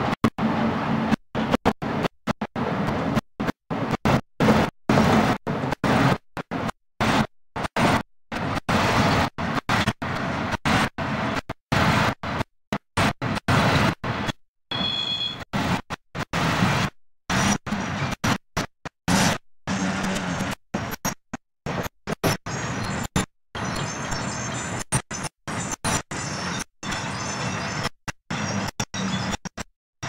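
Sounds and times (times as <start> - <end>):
diesel locomotive engine running: 0.0 - 15.0, 19.1 - 21.0.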